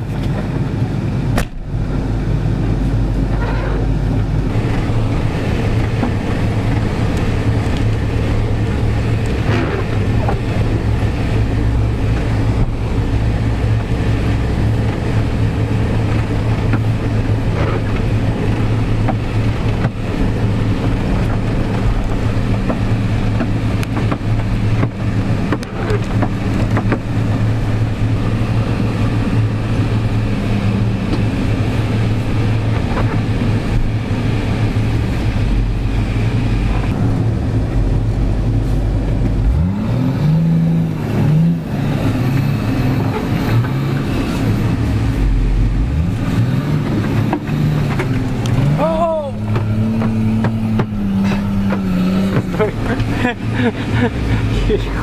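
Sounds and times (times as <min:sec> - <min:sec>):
low engine drone: 0:00.0 - 0:55.0
body knocks and rattles: 0:14.8 - 0:28.6.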